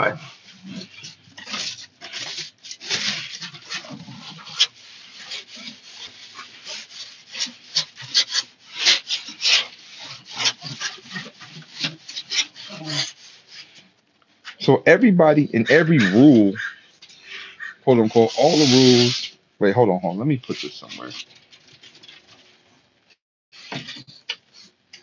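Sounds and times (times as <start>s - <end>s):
microphone rubbing against fabric: 0.0s - 19.3s.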